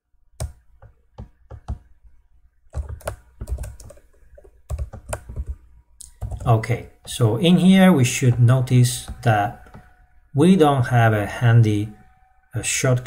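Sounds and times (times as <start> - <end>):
keyboard typing: 0.4 - 2.0, 2.7 - 10.1.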